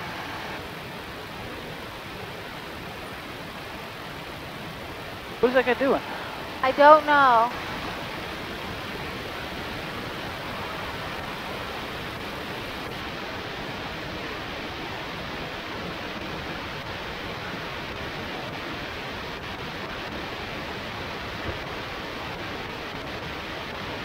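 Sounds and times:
rushing wind over camera: 0:00.0 - 0:24.0.

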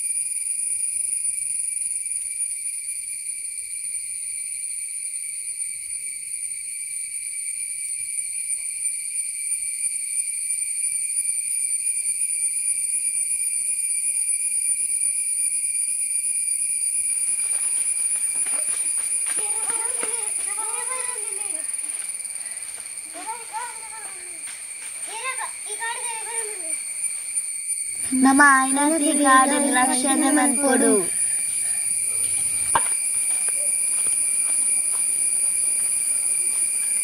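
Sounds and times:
insects shrilling: 0:00.0 - 0:37.0
people shouting: 0:28.1 - 0:31.4
footsteps on dry leaves: 0:32.2 - 0:37.0.

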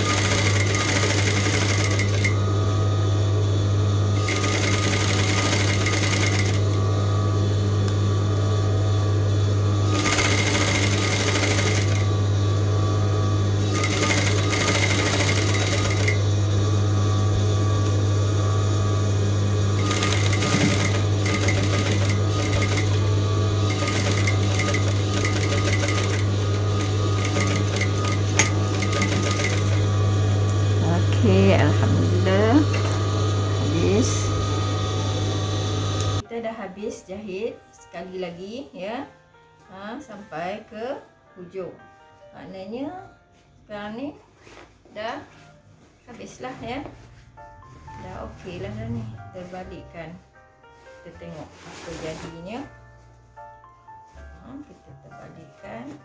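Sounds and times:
sewing machine rattle: 0:00.0 - 0:02.4, 0:04.2 - 0:06.8, 0:09.9 - 0:12.1, 0:13.6 - 0:16.2, 0:19.8 - 0:29.9
sewing machine motor hum: 0:00.0 - 0:36.2.

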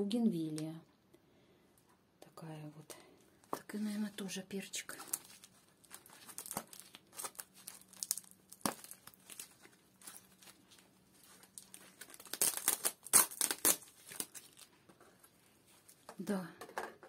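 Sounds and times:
plastic wrap crinkling and tearing: 0:04.8 - 0:16.1.

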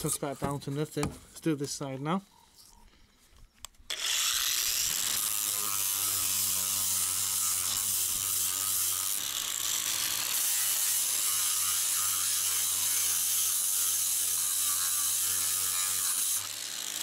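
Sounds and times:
angle grinder motor whine: 0:03.9 - 0:17.0.

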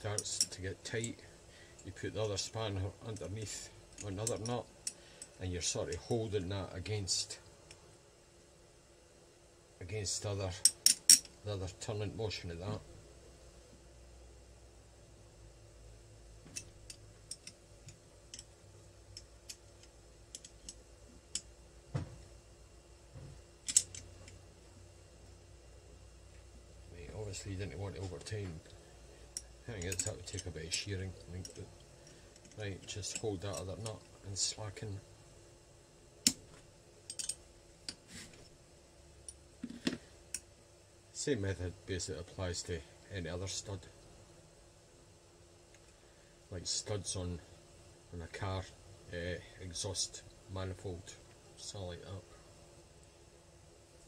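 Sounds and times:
sharp metal click: 0:23.6 - 0:24.4, 0:37.1 - 0:38.0.

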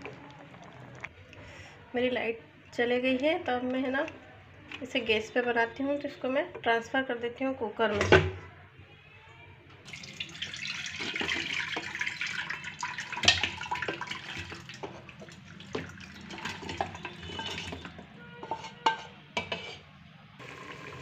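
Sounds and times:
chicken and gravy splashing into pot: 0:09.8 - 0:18.0
wooden spatula scraping a pan: 0:16.4 - 0:19.9.

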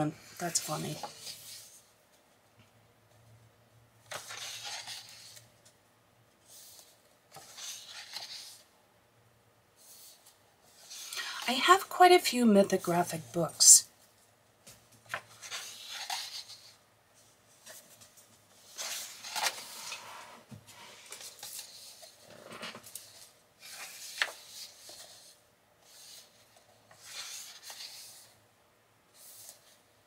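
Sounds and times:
paper pages turning: 0:04.0 - 0:05.7, 0:06.4 - 0:08.7, 0:14.7 - 0:16.8, 0:17.6 - 0:28.4, 0:29.1 - 0:29.8.

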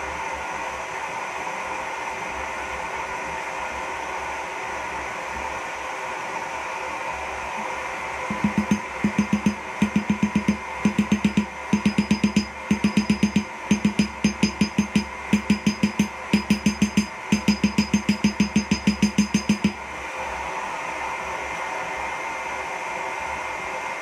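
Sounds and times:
hammer striking steel on anvil: 0:08.3 - 0:19.8.

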